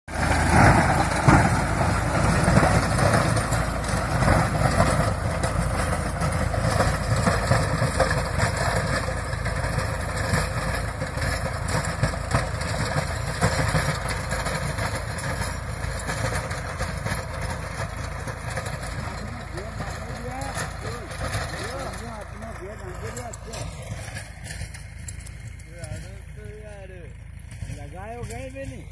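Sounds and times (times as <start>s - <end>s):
tractor diesel engine under load: 0.0s - 28.9s
rotavator churning dry soil: 0.1s - 26.9s.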